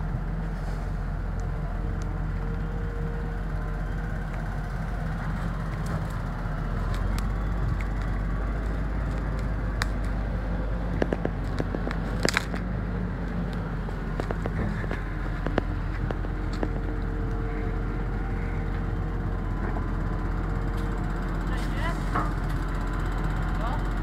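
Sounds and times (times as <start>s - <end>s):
tractor engine under load: 0.0s - 24.0s
sharp cracks and snaps: 6.9s - 10.2s, 10.9s - 12.7s.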